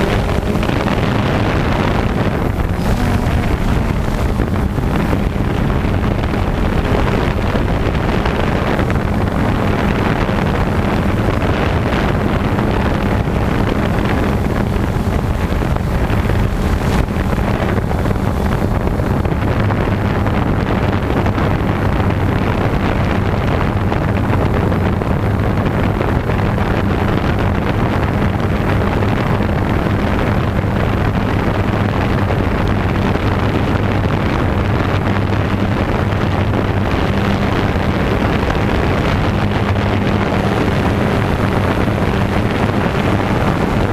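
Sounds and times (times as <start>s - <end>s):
drone motors humming: 0.0s - 20.5s
wind noise on microphone: 0.0s - 43.9s.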